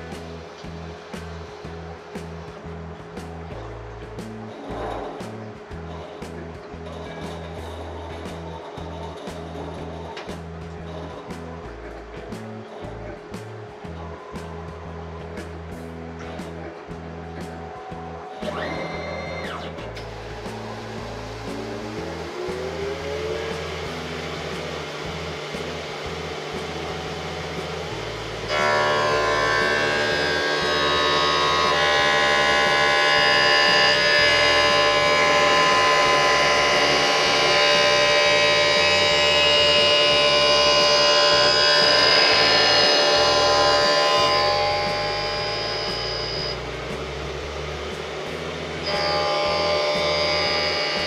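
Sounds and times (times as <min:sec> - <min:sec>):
rising motor tone: 0:13.9 - 0:51.0.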